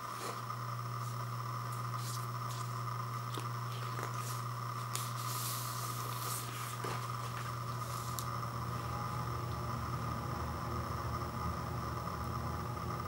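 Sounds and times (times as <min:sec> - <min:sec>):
steady low hum: 0:00.0 - 0:13.0
paper sleeve rustling: 0:01.0 - 0:08.3.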